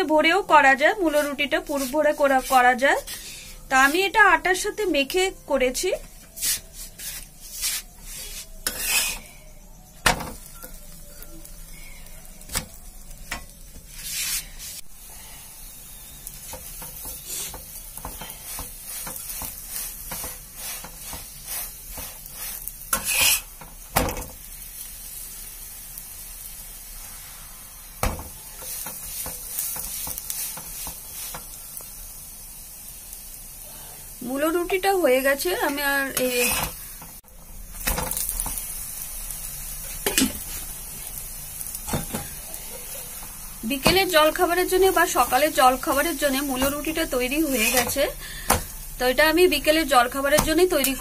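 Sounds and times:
oil sizzling: 0:00.0 - 0:51.0
metal spatula scraping pan: 0:01.0 - 0:04.1, 0:06.4 - 0:09.5, 0:16.0 - 0:23.7, 0:35.6 - 0:37.0, 0:43.8 - 0:48.2.

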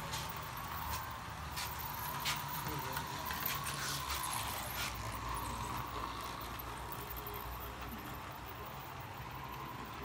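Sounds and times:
model train rumbling on track: 0:00.0 - 0:10.0.

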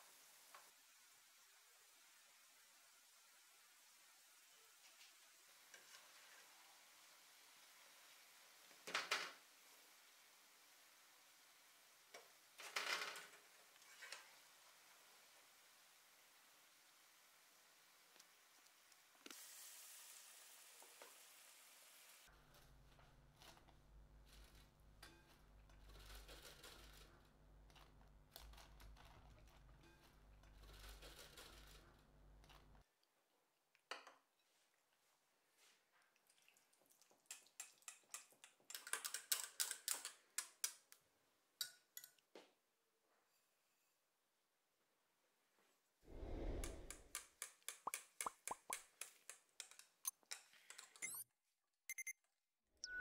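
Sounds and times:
whisk clicking against glass bowl: 0:47.1 - 0:50.8.

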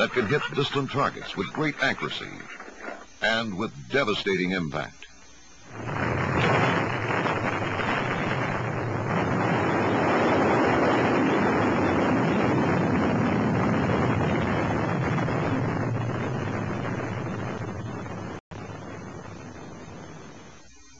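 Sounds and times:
missile launch roar: 0:05.7 - 0:19.2.

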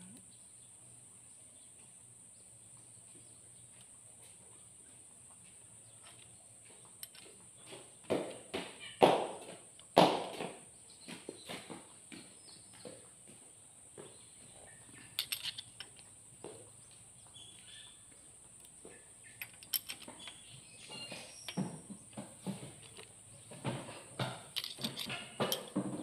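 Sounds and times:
metal tools clicking on metal: 0:07.0 - 0:07.3, 0:15.0 - 0:16.1, 0:19.3 - 0:21.7, 0:24.5 - 0:25.8.

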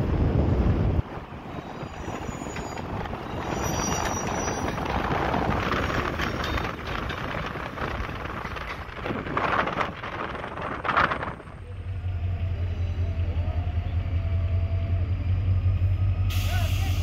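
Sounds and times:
train wheels rumbling on rails: 0:00.0 - 0:17.0
faint high wheel squeal: 0:01.6 - 0:04.9.

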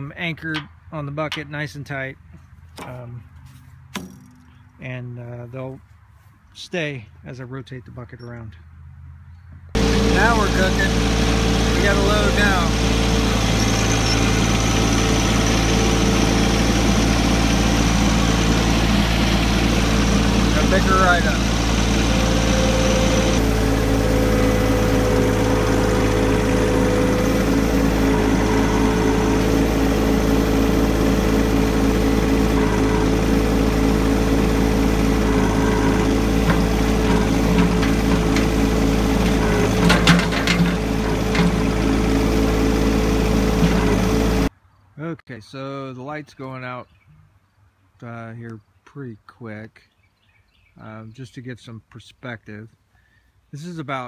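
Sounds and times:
tractor diesel engine running: 0:00.0 - 0:05.8, 0:09.7 - 0:44.5.

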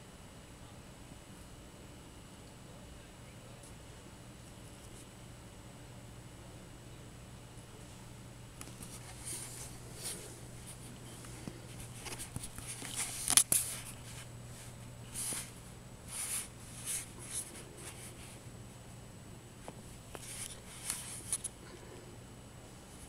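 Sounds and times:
steady low hum: 0:00.0 - 0:23.0
soft scratchy rustles: 0:08.6 - 0:18.4, 0:19.6 - 0:21.5.

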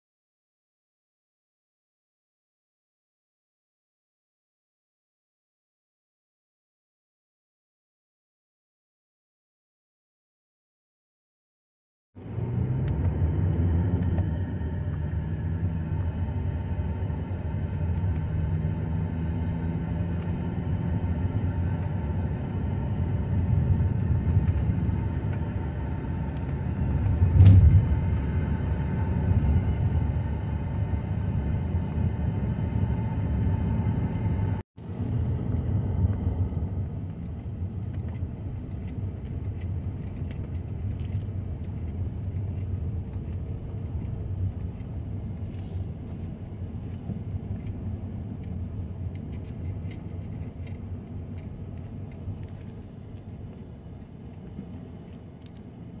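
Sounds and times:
car road and engine rumble: 0:12.2 - 0:56.0
loud thump: 0:27.2 - 0:28.2.

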